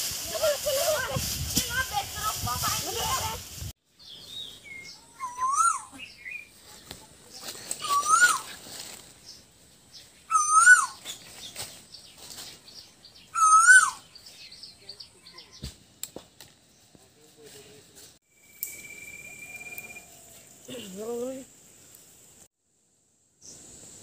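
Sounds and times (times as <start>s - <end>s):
bird whistling rising note: 18.4s - 20.2s.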